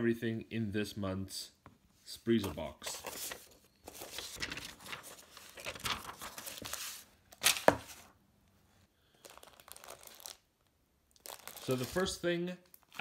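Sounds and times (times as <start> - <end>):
tissue paper crinkling: 2.9 - 8.1, 9.2 - 10.4, 11.2 - 12.2.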